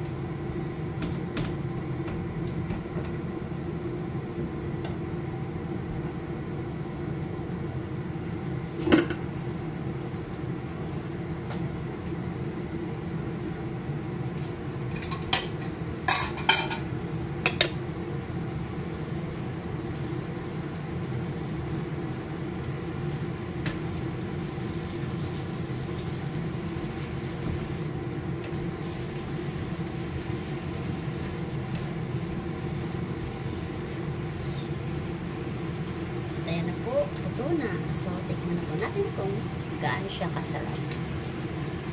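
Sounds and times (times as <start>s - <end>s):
steady mechanical hum: 0.0s - 41.9s
utensil clinking on frying pan: 15.0s - 16.9s.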